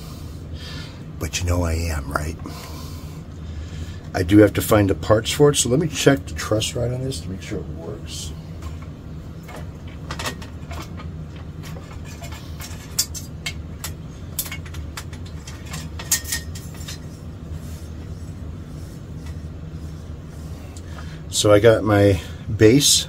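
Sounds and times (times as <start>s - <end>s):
steady low hum: 0.0s - 23.0s
hand tools clicking and knocking: 9.4s - 17.1s.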